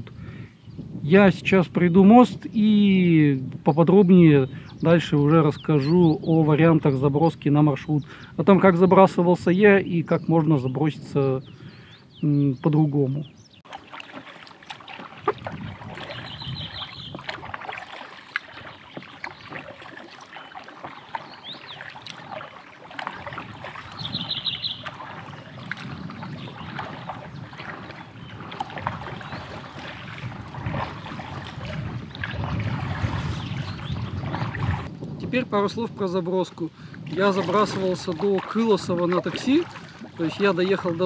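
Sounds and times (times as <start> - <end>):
water dripping and lapping: 13.5 - 35.2, 36.4 - 41.0
paddle strokes splashing: 13.6 - 35.0, 36.6 - 41.0
bird trilling: 16.0 - 17.3, 18.5 - 22.6, 23.2 - 25.6.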